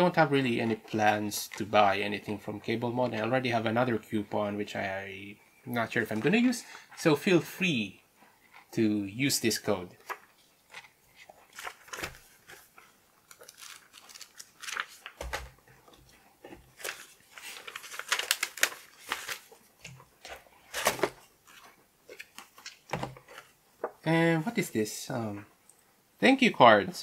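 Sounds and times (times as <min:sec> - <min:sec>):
paper and cardboard rustling: 0:09.9 - 0:24.7.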